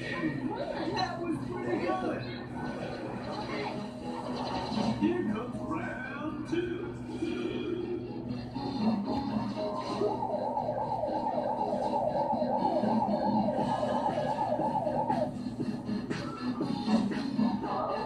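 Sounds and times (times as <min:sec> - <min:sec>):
television background sound: 0:00.0 - 0:18.0
siren-like warbling tone: 0:09.5 - 0:16.6.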